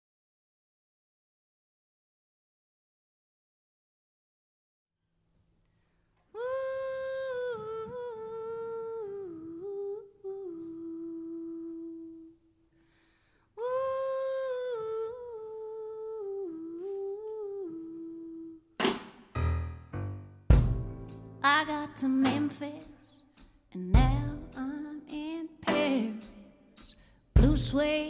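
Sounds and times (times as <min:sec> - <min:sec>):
woman humming a melody: 0:06.4 - 0:12.5, 0:13.6 - 0:18.7
sudden loud hit: 0:18.9 - 0:21.1.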